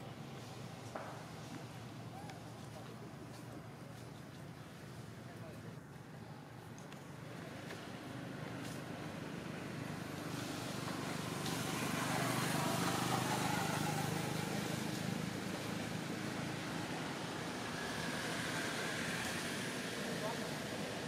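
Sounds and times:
motor vehicle passing: 7.2s - 21.0s.

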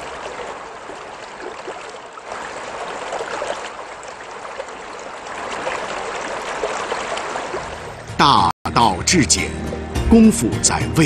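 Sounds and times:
river babbling over stones: 0.0s - 8.0s.

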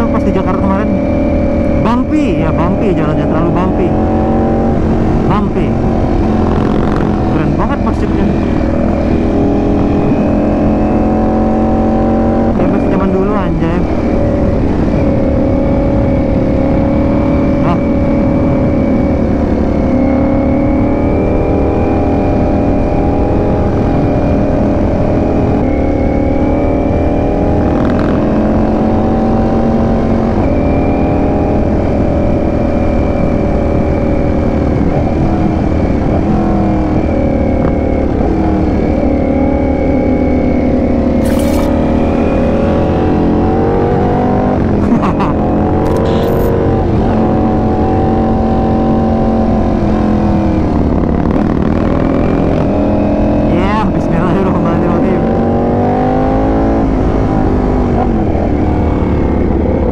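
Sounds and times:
motorcycle engine running: 0.0s - 59.9s
wind rumble on microphone: 0.0s - 59.9s
short clicks: 41.2s - 41.7s.

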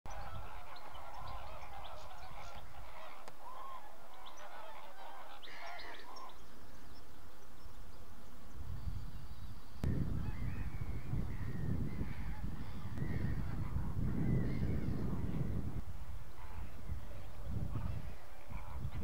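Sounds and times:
flamingos honking: 0.1s - 6.4s, 11.3s - 19.0s.

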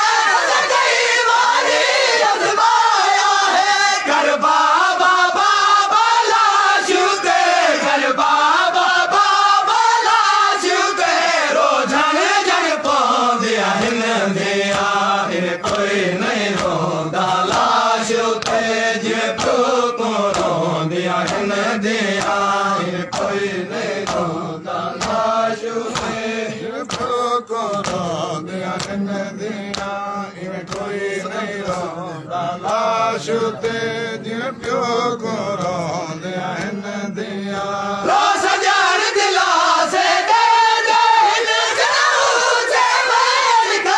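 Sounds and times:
men chanting in unison: 0.0s - 43.9s
rhythmic hand strikes: 11.9s - 40.5s.

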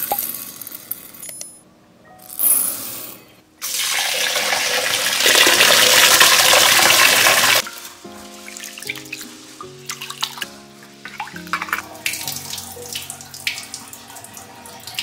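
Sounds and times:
soft background music: 1.2s - 5.2s, 7.6s - 15.0s
pearls rattling into glass bowl: 2.2s - 2.8s.

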